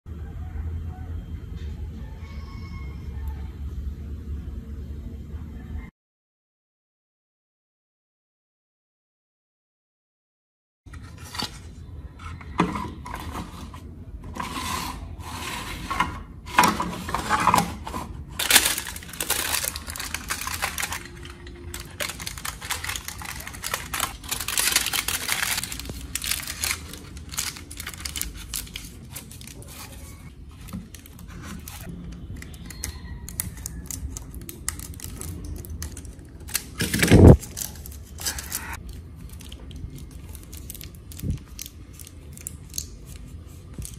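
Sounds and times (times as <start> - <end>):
aluminium foil crinkling: 16.6 - 43.9.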